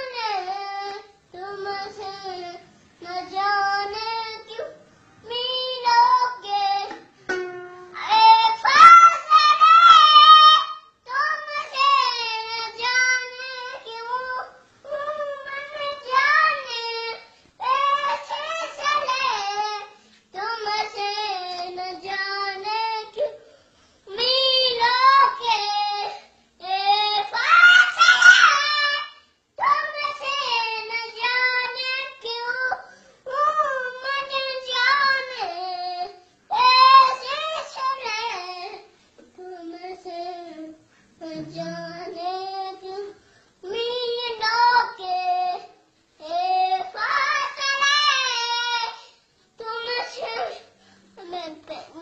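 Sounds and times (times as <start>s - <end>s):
young boy singing: 0.0s - 52.0s
boy singing long notes: 39.4s - 42.9s.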